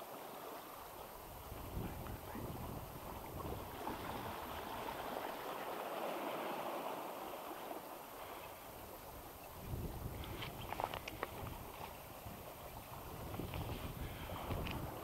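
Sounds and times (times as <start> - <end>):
sea water washing against rocks: 0.0 - 15.0
wind buffeting microphone: 1.3 - 5.2, 9.5 - 15.0.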